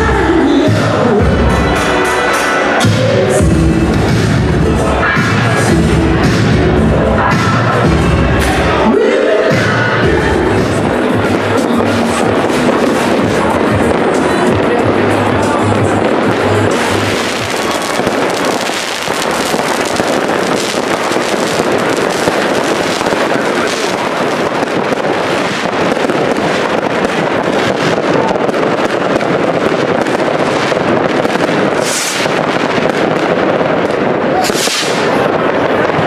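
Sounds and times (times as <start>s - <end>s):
fireworks and firecrackers crackling: 0.0s - 36.0s
sharp firework crack: 9.6s - 36.0s.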